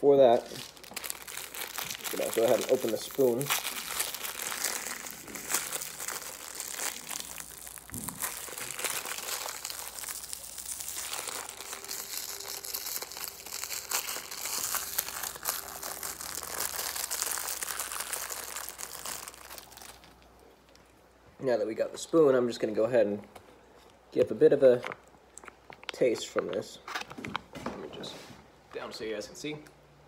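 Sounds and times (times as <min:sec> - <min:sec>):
plastic packaging crinkling: 0:00.2 - 0:20.9.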